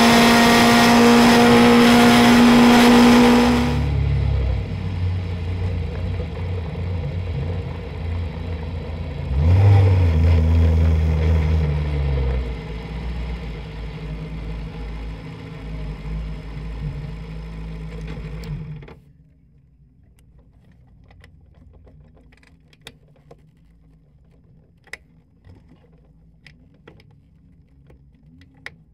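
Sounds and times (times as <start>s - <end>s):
race car engine running: 0.0s - 19.0s.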